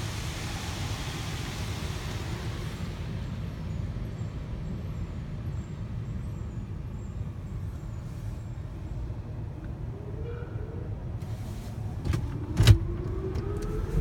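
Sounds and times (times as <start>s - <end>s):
water spraying on car: 0.0s - 3.9s
car wash machinery rumble: 0.0s - 9.9s, 10.8s - 14.0s.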